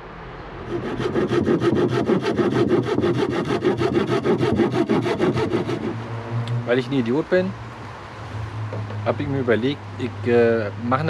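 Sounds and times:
handsaw cutting wood: 0.7 - 6.0.

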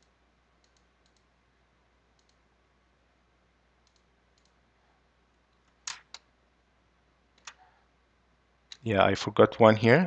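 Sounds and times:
computer mouse clicks: 0.0 - 1.3, 2.1 - 2.4, 3.8 - 4.6, 7.4 - 7.6.

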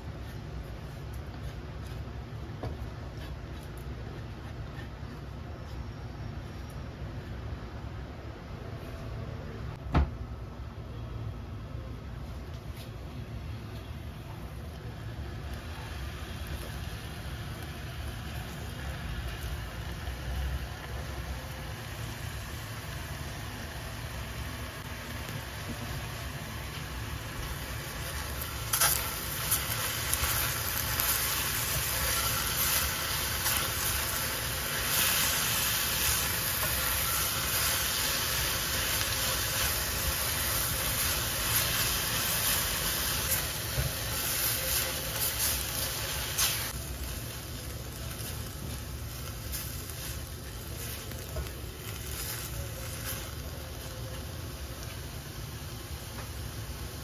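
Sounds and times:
vegetables sizzling in oil: 15.0 - 57.0.

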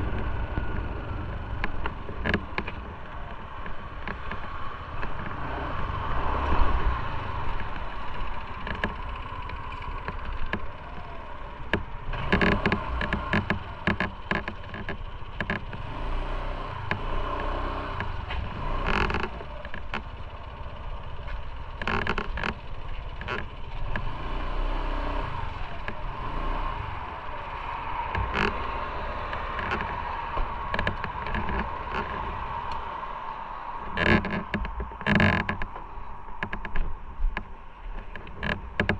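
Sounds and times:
sharp clicks and knocks: 0.0 - 5.4, 7.4 - 15.9, 16.8 - 20.3, 21.2 - 24.1, 27.5 - 32.9, 33.9 - 38.9
road traffic noise: 0.0 - 38.9.

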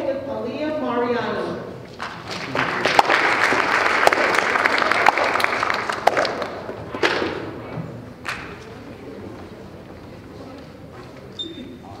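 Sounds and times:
audience applauding: 1.9 - 6.8.

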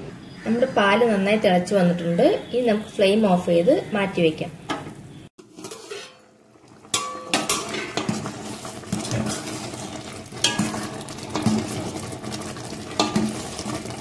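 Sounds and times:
ladle stirring and scraping pot: 5.4 - 14.0
metal ladle clinking on pot: 6.9 - 9.7, 10.4 - 12.0, 12.9 - 13.7.

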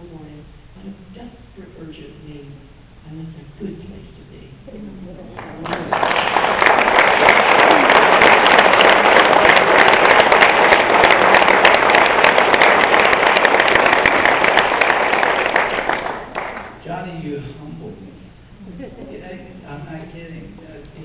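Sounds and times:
audience applauding: 5.4 - 16.8.

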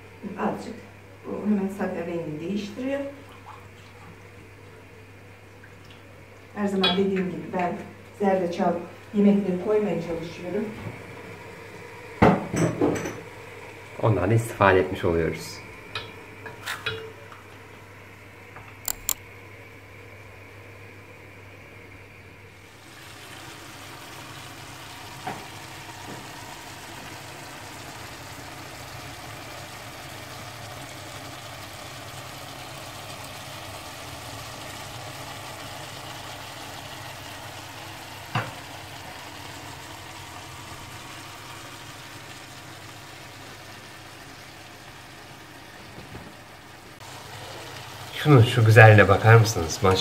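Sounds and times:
low steady hum: 0.0 - 50.0
sharp clicks: 18.8 - 19.2
food sizzling in a pan: 22.6 - 50.0.

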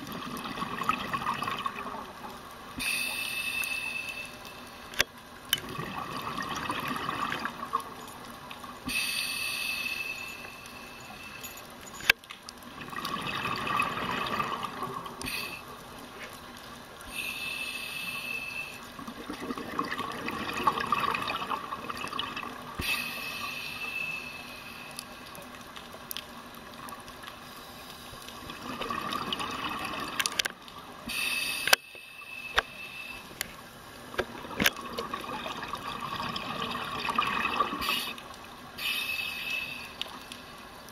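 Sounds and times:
exhaled bubbles rushing: 0.0 - 2.2, 5.6 - 7.8, 12.7 - 15.2, 19.0 - 22.8, 28.4 - 30.3, 34.2 - 38.1
regulator hissing inhales: 2.8 - 4.7, 8.9 - 11.4, 15.2 - 15.7, 17.1 - 18.9, 22.8 - 25.0, 31.1 - 33.4, 38.8 - 40.1.

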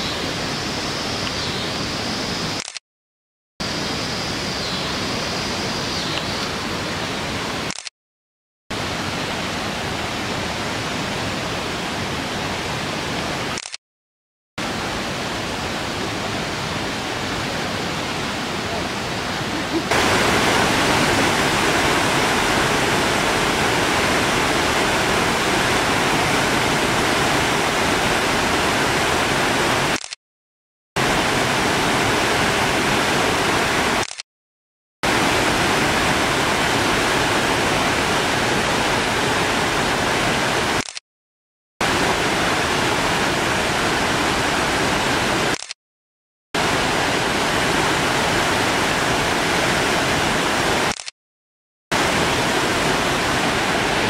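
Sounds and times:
water rushing over spillway: 8.7 - 13.6, 14.6 - 30.1, 31.0 - 34.2, 35.0 - 40.9, 41.8 - 45.7, 46.6 - 51.1, 51.9 - 54.0.

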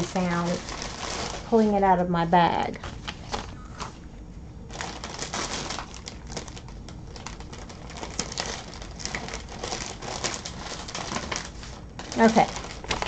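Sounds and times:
bag rustling and crackling: 0.0 - 1.9, 4.7 - 13.0.

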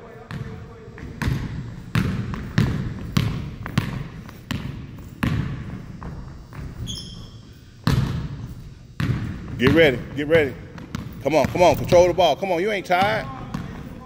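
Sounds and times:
basketball bouncing on hardwood: 0.3 - 6.9, 7.8 - 8.4, 9.0 - 9.8, 10.7 - 12.0, 13.0 - 14.0
sneaker squeak: 1.3 - 9.4.

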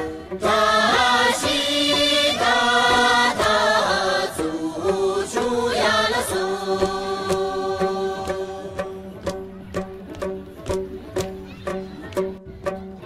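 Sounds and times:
group singing chant-like melody: 0.0 - 9.6
music: 0.0 - 13.0.

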